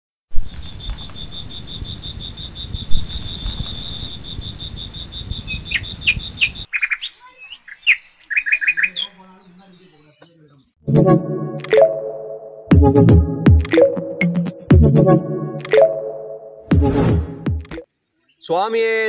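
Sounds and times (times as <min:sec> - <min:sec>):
birds chirping: 0:04.9 - 0:10.8.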